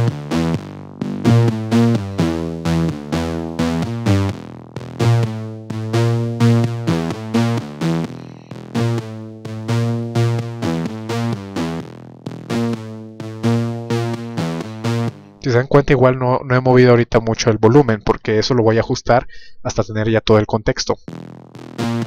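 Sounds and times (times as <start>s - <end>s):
distorted synthesizer lead melody: 0.0s - 15.6s, 21.1s - 22.0s.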